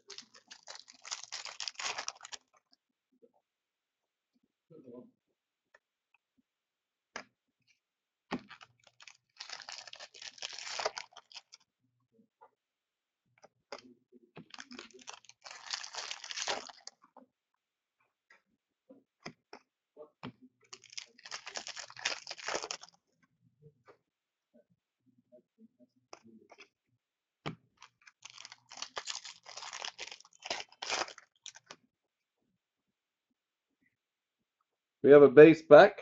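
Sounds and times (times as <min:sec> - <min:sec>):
cards being handled: 0:00.0 - 0:02.4, 0:08.3 - 0:11.6, 0:14.4 - 0:16.9, 0:20.8 - 0:22.9, 0:27.5 - 0:31.8
wrappers tearing and crinkling: 0:00.0 - 0:02.5, 0:08.4 - 0:11.6, 0:14.5 - 0:16.9, 0:20.8 - 0:22.9, 0:27.8 - 0:31.7.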